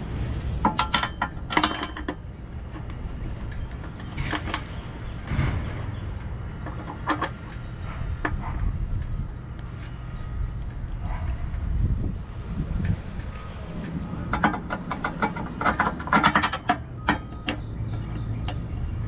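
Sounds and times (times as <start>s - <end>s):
metal clicking and clinking: 0.6s - 4.9s.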